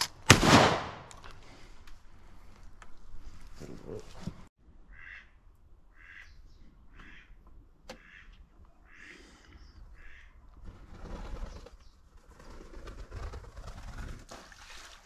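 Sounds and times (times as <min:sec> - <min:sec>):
ducks quacking: 0:04.8 - 0:10.4.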